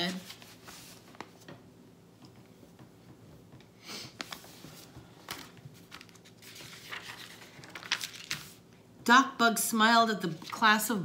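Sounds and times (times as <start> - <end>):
paper booklet rustling: 0.0 - 1.5, 4.2 - 8.7.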